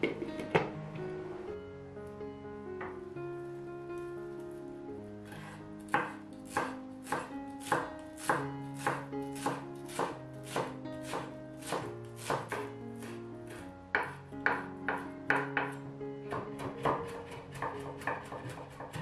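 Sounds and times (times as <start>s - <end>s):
soft background music: 0.0s - 19.0s
knife chopping on wooden board: 5.3s - 19.0s.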